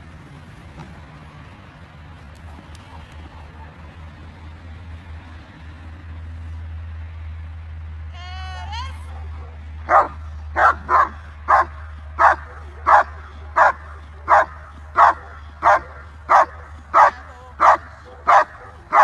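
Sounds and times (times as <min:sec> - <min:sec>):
dog barking: 0:09.2 - 0:19.0.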